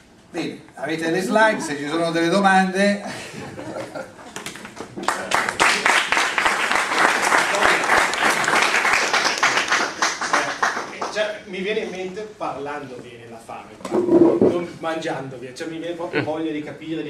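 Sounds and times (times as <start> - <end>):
audience clapping: 4.3 - 11.4.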